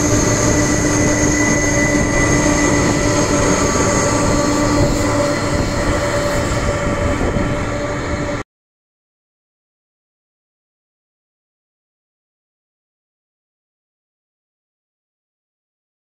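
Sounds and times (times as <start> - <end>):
jet engines whining: 0.0 - 8.4.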